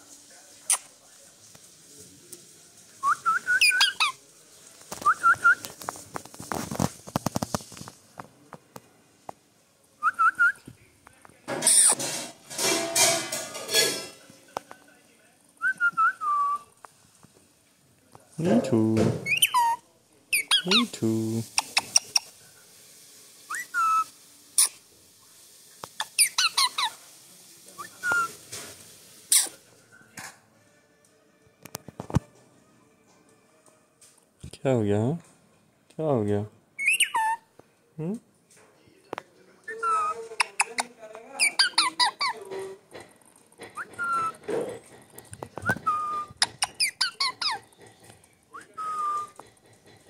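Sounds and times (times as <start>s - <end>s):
parakeet whistled notes: 3.0s - 4.1s, 36.8s - 37.4s, 43.8s - 44.4s, 45.7s - 47.6s, 48.5s - 49.4s
parakeet chirping and squeaking: 3.6s - 4.2s, 11.6s - 12.0s, 19.2s - 22.3s, 26.0s - 27.0s, 29.3s - 29.5s, 36.8s - 37.4s, 39.7s - 42.4s, 43.8s - 44.4s, 45.7s - 47.7s
parakeet falling chirps: 36.8s - 37.4s.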